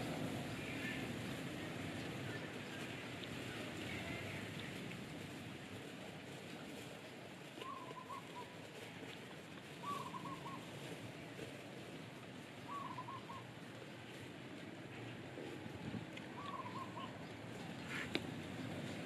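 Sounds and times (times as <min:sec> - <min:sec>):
faint outdoor background noise: 0:00.0 - 0:19.0
bird calling: 0:07.6 - 0:08.6, 0:09.8 - 0:10.7, 0:12.6 - 0:13.5, 0:16.2 - 0:18.3.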